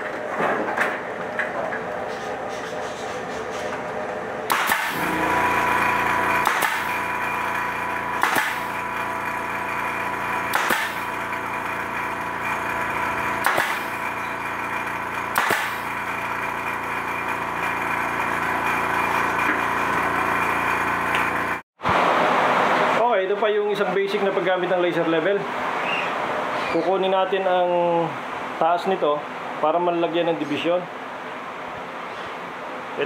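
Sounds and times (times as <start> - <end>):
air compressor hum: 0.0 - 23.1
pneumatic nailer shots: 4.5 - 16.6.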